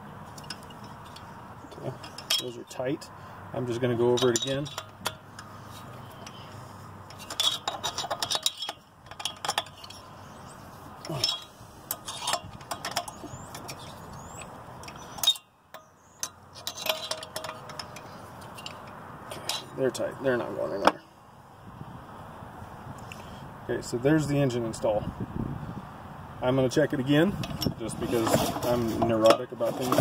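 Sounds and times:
metal clicks of driver on bolts: 4.1 - 5.6, 7.1 - 10.0, 11.1 - 19.7.

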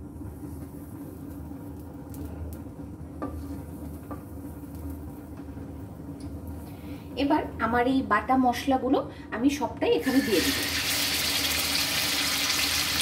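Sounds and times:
steady low hum: 0.0 - 10.4
oil sizzling faintly: 10.0 - 13.0.

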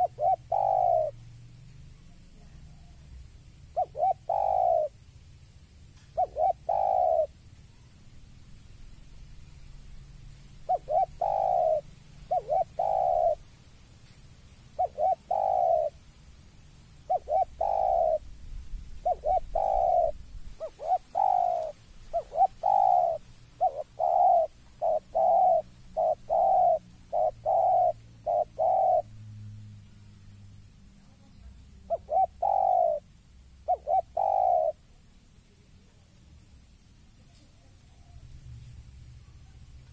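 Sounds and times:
dove cooing: 0.0 - 1.2, 2.0 - 5.1, 6.0 - 7.4, 10.6 - 13.4, 14.7 - 16.0, 17.0 - 18.3, 18.9 - 29.2, 31.0 - 35.6.

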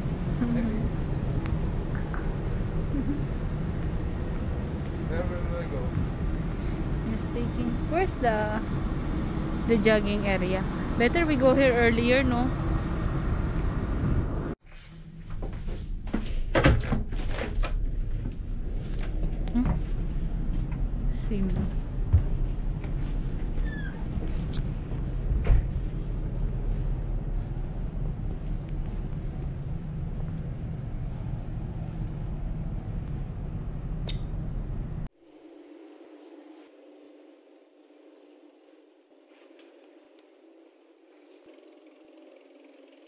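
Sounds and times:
high squeak: 23.6 - 24.1.

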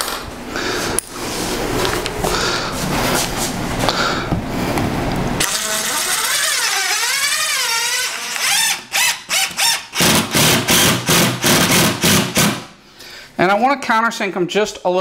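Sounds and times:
cordless drill driving screws: 5.4 - 12.6.

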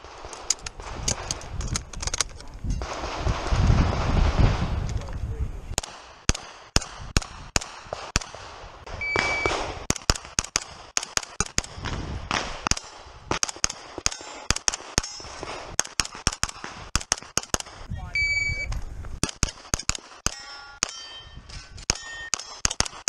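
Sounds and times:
carbine firing single shots: 0.0 - 1.6, 5.7 - 18.4, 19.2 - 23.0
short high beep: 9.0 - 9.5, 18.1 - 18.7.

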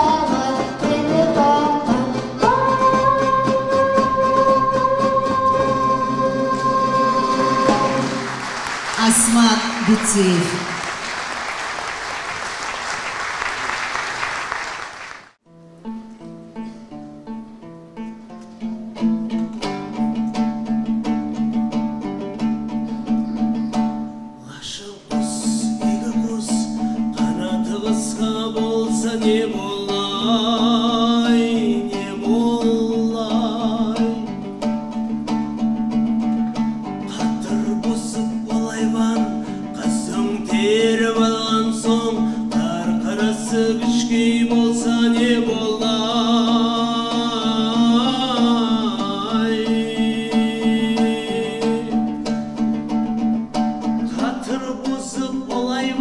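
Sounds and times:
lute strumming: 0.0 - 13.7, 15.4 - 56.0
man singing: 24.4 - 34.5, 37.0 - 52.3, 53.9 - 56.0.

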